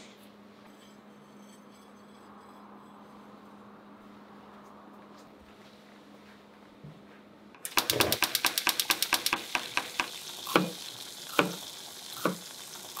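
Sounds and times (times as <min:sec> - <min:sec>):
hot oil sizzling: 0:07.7 - 0:13.0
oil crackling and popping: 0:07.7 - 0:13.0.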